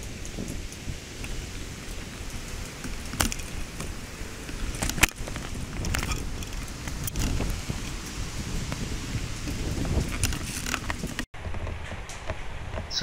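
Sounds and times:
microphone handling noise: 2.8 - 13.0.

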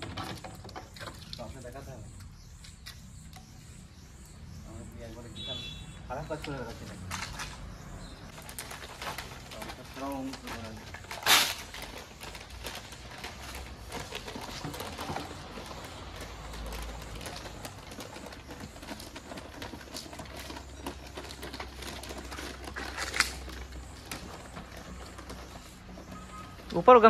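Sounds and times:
paper rustling: 8.3 - 27.0.

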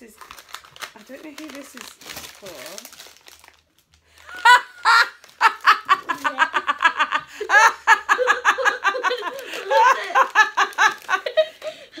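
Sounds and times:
woman laughing: 4.2 - 12.0
young boy laughing: 4.3 - 12.0.

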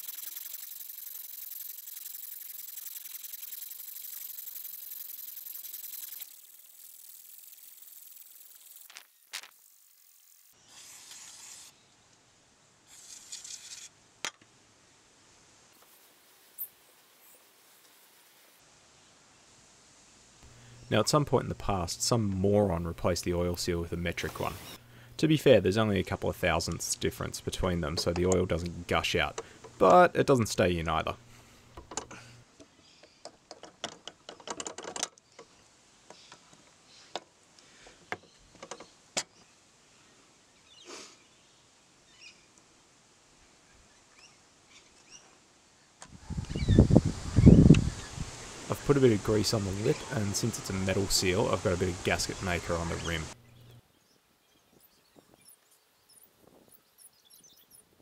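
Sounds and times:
sandpaper scrubbing metal: 0.0 - 9.5, 10.7 - 11.7, 24.2 - 24.8
sharp clicks: 0.0 - 9.6.

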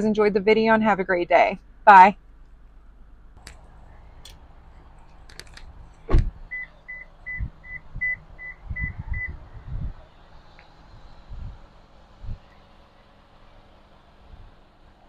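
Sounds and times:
car door shutting: 5.3 - 7.9.

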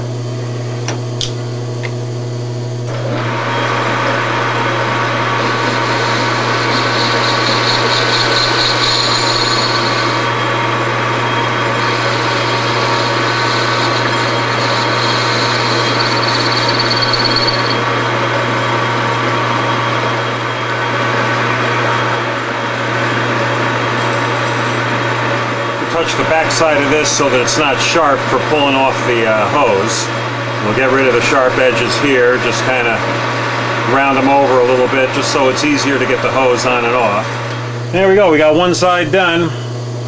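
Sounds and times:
high whine of cutting tool: 0.0 - 40.0
metal lathe running: 2.9 - 37.6
hand file on spinning metal: 5.4 - 10.4, 11.5 - 17.9.

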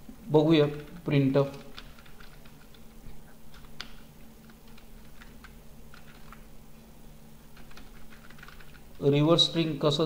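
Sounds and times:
faint low hum: 0.0 - 10.0
keyboard keys clicking: 1.5 - 2.8, 3.5 - 6.4, 7.6 - 8.8.

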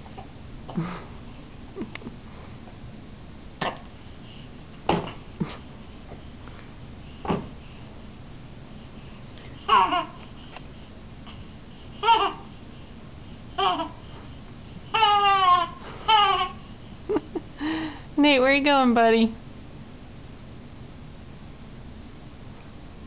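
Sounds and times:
baby squealing: 9.7 - 10.2, 14.9 - 16.6.

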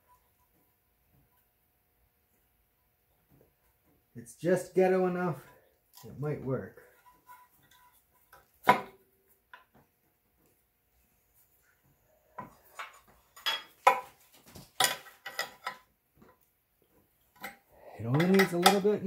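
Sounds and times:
metal tools clinking: 12.6 - 14.1, 14.7 - 15.9, 17.3 - 19.0.

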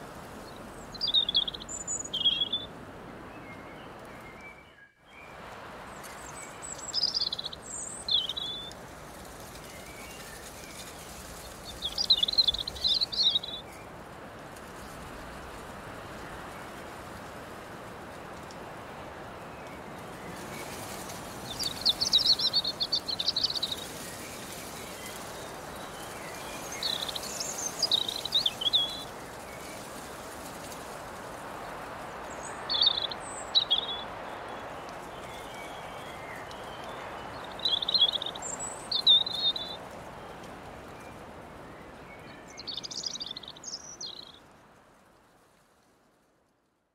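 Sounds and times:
breeze rustling grass and leaves: 0.0 - 46.9
songbird warbling: 0.8 - 2.6, 6.7 - 8.7, 21.5 - 23.9, 26.5 - 29.1, 32.3 - 34.1, 36.5 - 39.8.

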